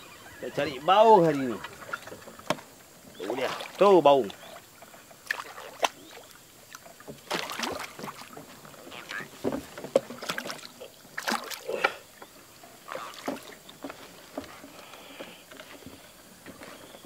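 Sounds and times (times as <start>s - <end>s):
fish thrashing and splashing water: 3.2s - 4.5s, 5.2s - 12.1s, 12.8s - 13.7s.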